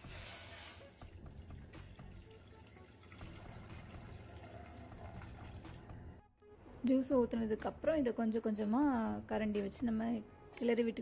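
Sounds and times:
juice pouring into a metal pot: 0.0 - 6.2.

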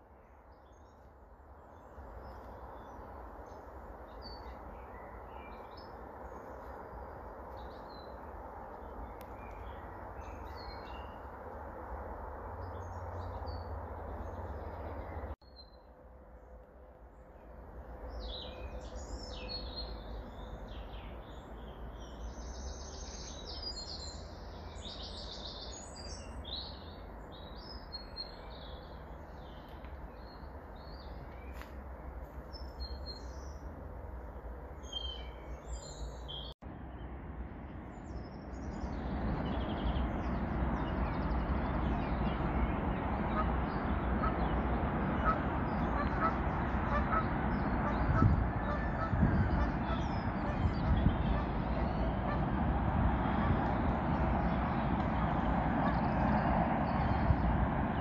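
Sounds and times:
steady low rumble: 0.0 - 58.0
birds singing and chirping: 37.9 - 57.6.

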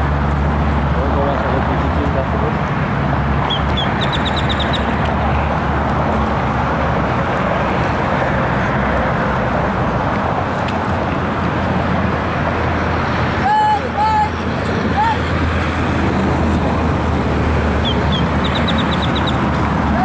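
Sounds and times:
loud outdoor background rush: 0.0 - 20.0
bird chirping: 3.4 - 5.0, 17.8 - 19.4.

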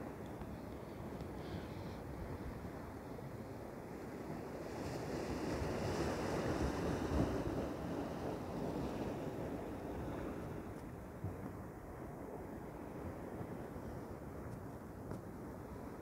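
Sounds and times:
ocean surf breaking on rocks: 4.1 - 10.8.

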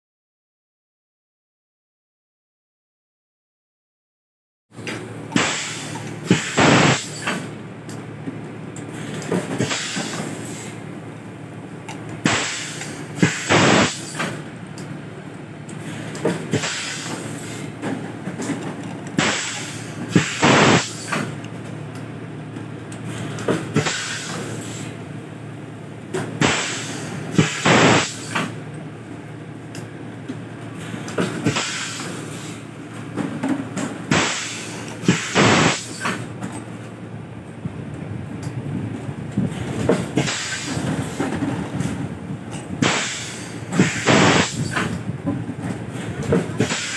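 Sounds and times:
steady machine hum: 4.8 - 46.9
compressed air hissing blasts: 5.4 - 7.5, 9.6 - 10.8, 12.2 - 14.4, 15.8 - 17.7, 19.2 - 21.3, 23.8 - 25.0, 26.4 - 28.5, 31.4 - 32.6, 34.1 - 36.2, 40.2 - 41.2, 42.8 - 45.0, 46.6 - 46.9.

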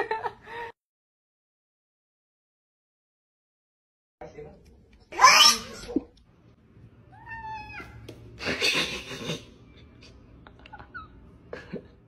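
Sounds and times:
cat meowing: 5.2 - 5.9, 7.1 - 8.0.

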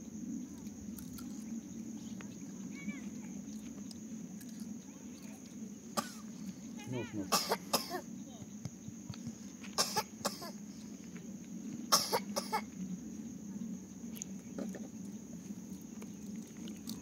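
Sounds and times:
person coughing: 7.3 - 8.0.

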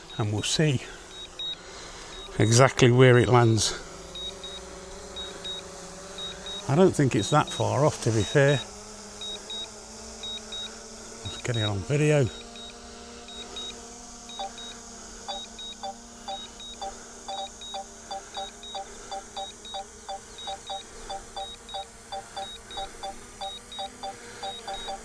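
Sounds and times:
drone propellers humming: 3.3 - 25.0
controller double beeps: 13.3 - 25.0.

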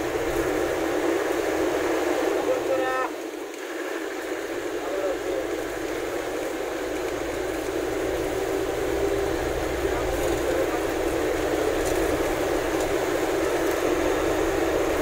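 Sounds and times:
vehicle cabin rumble and hiss: 0.0 - 15.0.

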